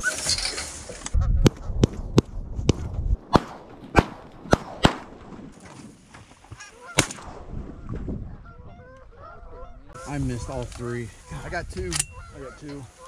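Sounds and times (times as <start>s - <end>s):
shotgun shots: 3.2s - 5.5s, 7.0s - 7.5s.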